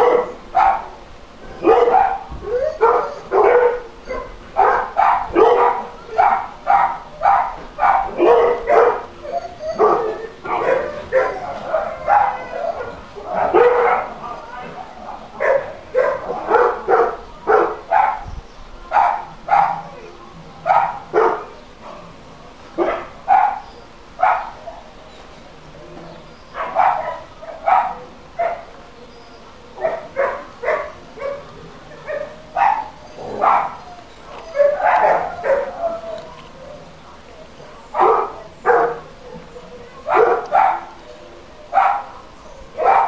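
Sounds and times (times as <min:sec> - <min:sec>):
dog barking: 0:00.0 - 0:00.9, 0:01.6 - 0:02.2, 0:02.8 - 0:09.1, 0:09.7 - 0:14.2, 0:15.4 - 0:18.2, 0:18.9 - 0:19.9, 0:20.7 - 0:21.5, 0:22.8 - 0:23.6, 0:24.2 - 0:24.8, 0:26.6 - 0:28.7, 0:29.8 - 0:31.4, 0:32.1 - 0:33.8, 0:34.6 - 0:35.7, 0:38.0 - 0:39.0, 0:40.1 - 0:40.9, 0:41.8 - 0:42.1, 0:42.8 - 0:43.0.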